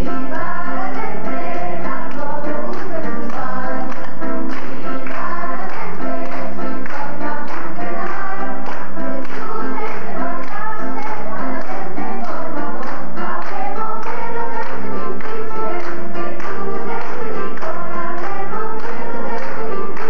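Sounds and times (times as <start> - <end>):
children singing in unison: 0.0 - 20.0
electronic keyboard chords: 0.0 - 20.0.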